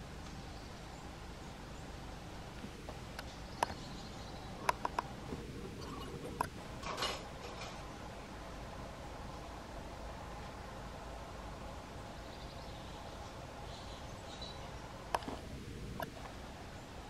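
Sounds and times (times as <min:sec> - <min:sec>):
songbird call notes: 0:00.0 - 0:06.6, 0:11.9 - 0:15.3
outdoor hiss: 0:00.0 - 0:17.0.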